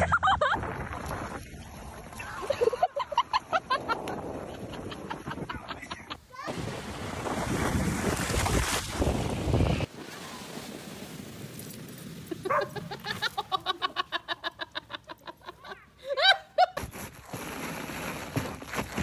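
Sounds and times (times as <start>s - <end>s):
water splashing at shoreline: 6.4s - 11.4s.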